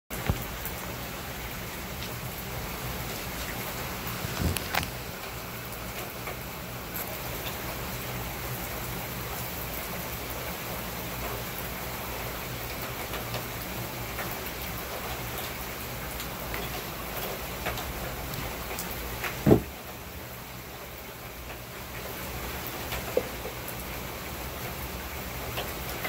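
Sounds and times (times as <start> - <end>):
heavy rain on pavement: 0.1 - 26.0
loud thump: 19.4 - 19.8.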